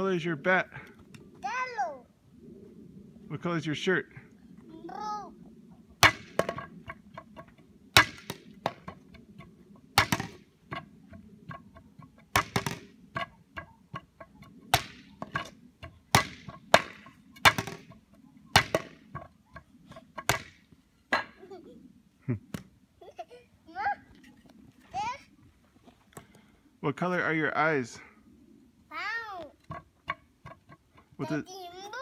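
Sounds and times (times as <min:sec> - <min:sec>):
plastic toy bat knocking wooden pole: 0:10.0 - 0:10.8, 0:12.4 - 0:15.5, 0:16.2 - 0:17.9, 0:18.6 - 0:19.3.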